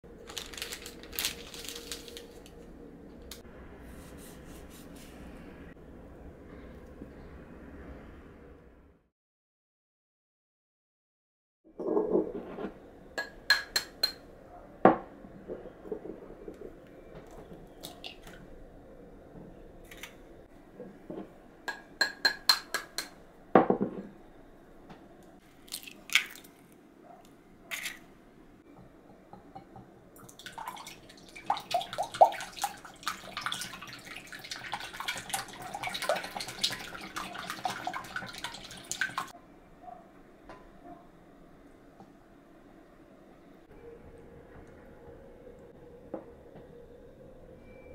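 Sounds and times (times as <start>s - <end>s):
crisp rustling and clicking: 0.2s - 2.6s
faint steady hum: 23.2s - 47.9s.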